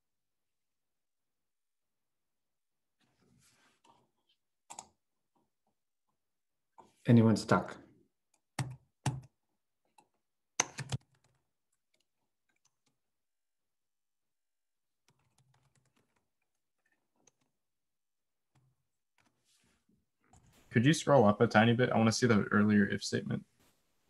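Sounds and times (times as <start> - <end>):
computer keyboard typing: 10.6 - 13.0, 15.1 - 17.5.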